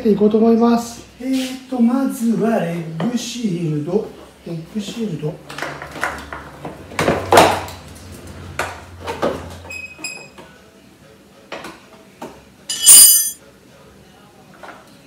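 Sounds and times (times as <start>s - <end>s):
bright metallic clink: 12.7s - 13.4s
hand tools knocking and clicking: 12.7s - 13.4s
short metallic ring: 12.7s - 13.4s.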